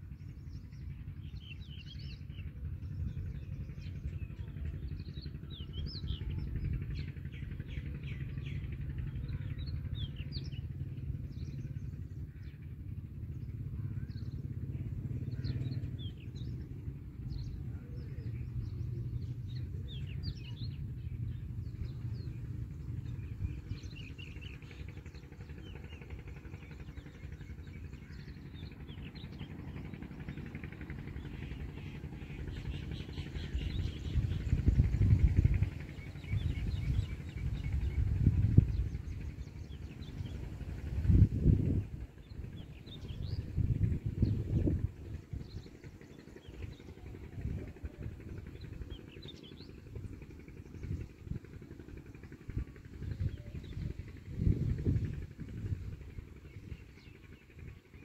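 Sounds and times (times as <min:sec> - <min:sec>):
low rumble: 0:00.0 - 0:57.9.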